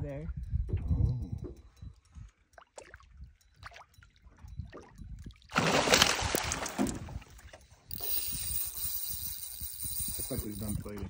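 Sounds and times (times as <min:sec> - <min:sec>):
fish thrashing and splashing: 0:05.5 - 0:07.2.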